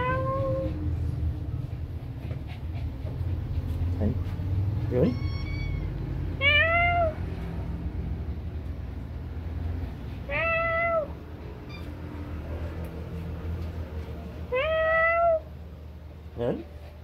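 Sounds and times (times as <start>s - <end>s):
cat meowing: 0.0s - 0.9s, 4.9s - 7.4s, 10.3s - 12.2s, 14.5s - 15.5s.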